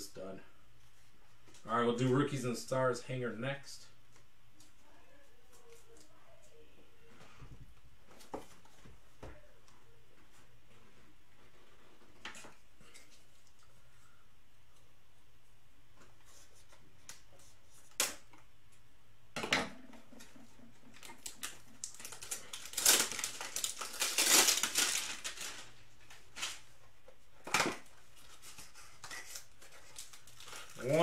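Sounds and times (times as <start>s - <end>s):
cardboard and wrapper tearing: 20.9s - 26.6s, 29.0s - 31.0s.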